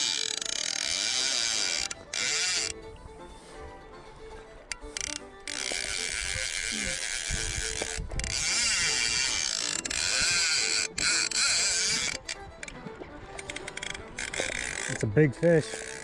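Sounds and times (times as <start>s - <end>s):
fly reel screaming: 0.0s - 2.8s, 4.9s - 12.8s, 13.4s - 15.0s, 15.6s - 16.0s.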